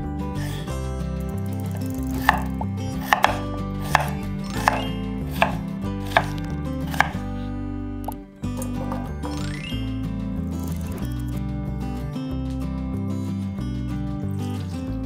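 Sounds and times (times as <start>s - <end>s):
knife chopping on wooden board: 2.1s - 7.2s.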